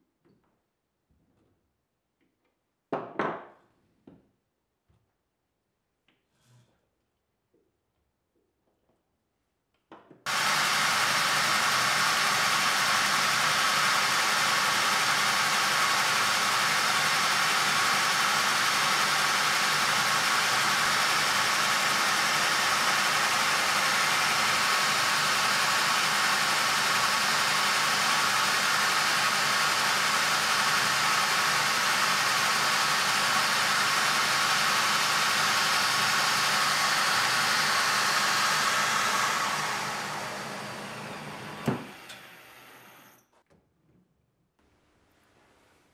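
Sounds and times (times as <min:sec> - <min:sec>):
lathe turning: 0:10.3 - 0:43.2
rotary tool high whine: 0:10.3 - 0:43.2.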